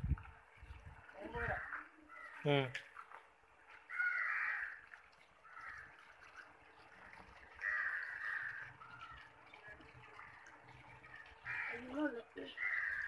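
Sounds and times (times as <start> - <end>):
crow cawing: 1.4 - 2.4, 3.9 - 6.0, 7.6 - 9.2, 11.4 - 13.0.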